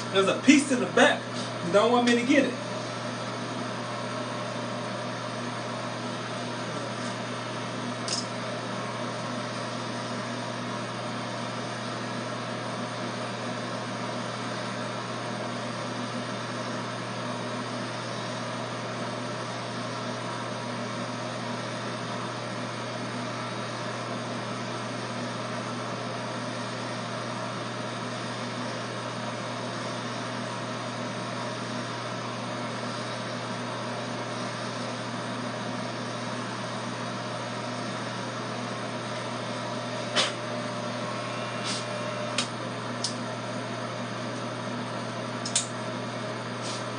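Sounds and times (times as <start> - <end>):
electric hair clippers buzzing: 0.0 - 3.6, 7.8 - 8.6, 39.6 - 46.9.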